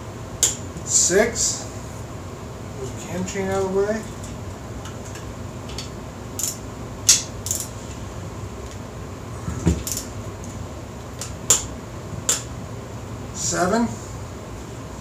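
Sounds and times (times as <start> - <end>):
torque wrench clicking: 5.7 - 7.7, 9.8 - 10.1.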